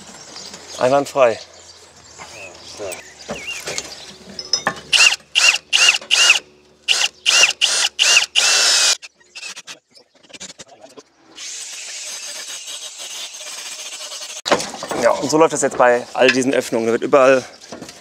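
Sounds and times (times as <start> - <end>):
power tool whining bursts: 4.9 - 9.7.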